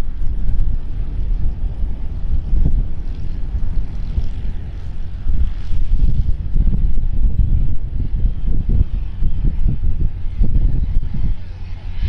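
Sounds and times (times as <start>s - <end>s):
aircraft engine and propeller: 0.0s - 12.0s
wind buffeting microphone: 0.0s - 12.0s.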